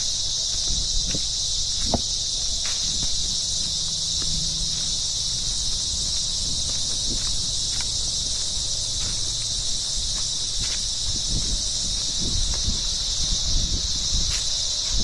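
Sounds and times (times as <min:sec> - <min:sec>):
footsteps crunching on dry leaves: 0:00.0 - 0:15.0
insect chorus buzzing: 0:00.0 - 0:15.0.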